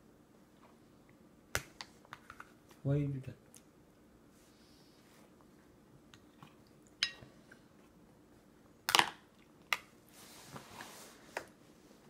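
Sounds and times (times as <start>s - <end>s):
soft rustle: 10.0s - 12.0s.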